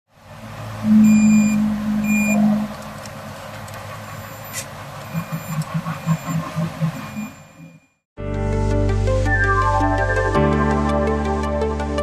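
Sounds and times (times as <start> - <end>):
loud low hum: 0.1 - 7.8
high-pitched buzzer beeps: 0.8 - 2.7, 4.3 - 8.0.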